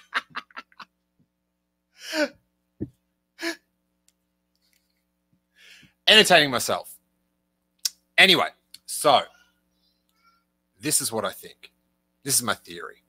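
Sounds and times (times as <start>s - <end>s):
man laughing: 0.0s - 0.8s.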